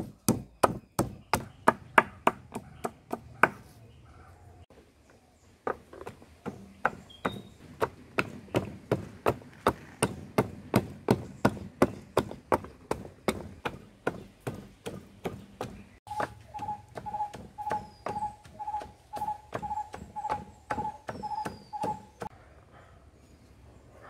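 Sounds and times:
wooden pestle pounding in mortar: 0:00.0 - 0:03.6, 0:05.7 - 0:22.3.

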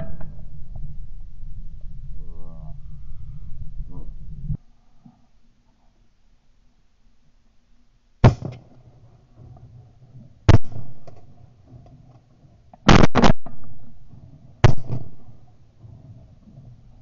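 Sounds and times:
shotgun blasts with echo: 0:10.5 - 0:11.2, 0:14.6 - 0:15.4.

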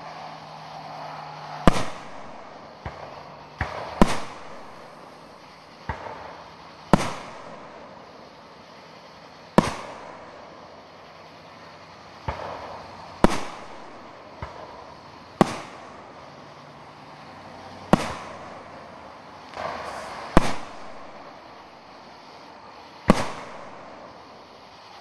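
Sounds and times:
fireworks bursting with echo: 0:00.0 - 0:25.0.

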